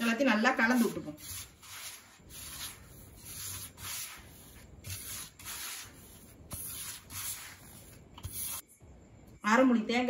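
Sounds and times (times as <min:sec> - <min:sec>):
hand scraping flour in steel bowl: 0:00.0 - 0:08.6.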